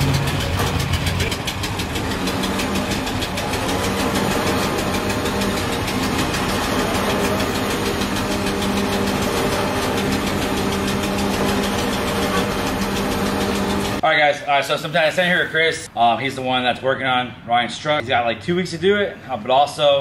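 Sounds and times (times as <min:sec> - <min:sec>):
truck engine idling: 0:00.0 - 0:14.0.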